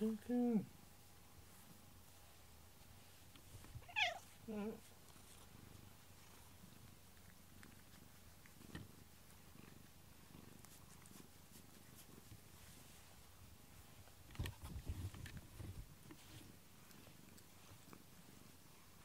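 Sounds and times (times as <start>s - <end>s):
cat purring: 0.0s - 19.0s.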